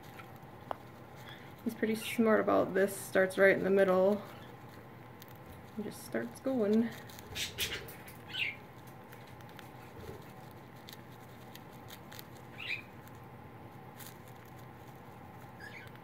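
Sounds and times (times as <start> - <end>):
paper and hay crinkling: 0.0 - 16.0
bird high chirps: 7.3 - 8.6, 12.5 - 13.0, 15.6 - 16.0.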